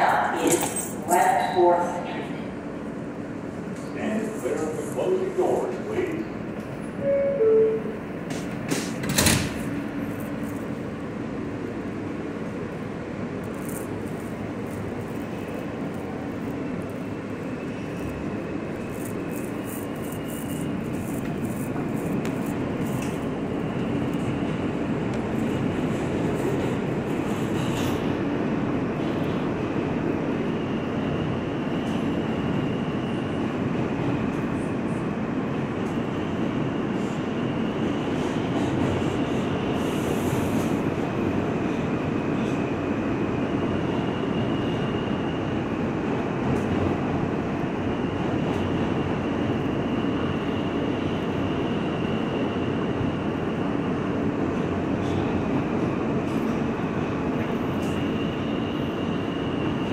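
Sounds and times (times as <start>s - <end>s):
train motors and wheels on rails: 0.0s - 59.9s
train doors knocking shut: 8.2s - 9.7s.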